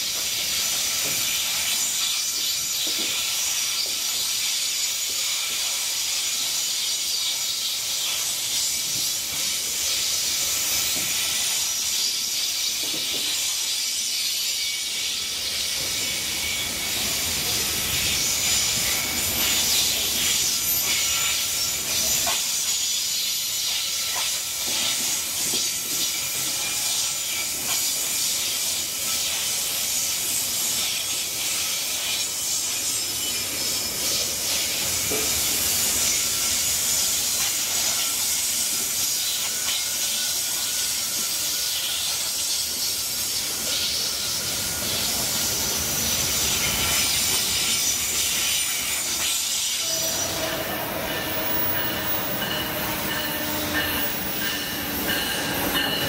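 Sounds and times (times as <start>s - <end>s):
electric train hum: 0.0s - 56.0s
train wheels hissing on rails: 0.0s - 56.0s
wheel squeal: 43.7s - 56.0s.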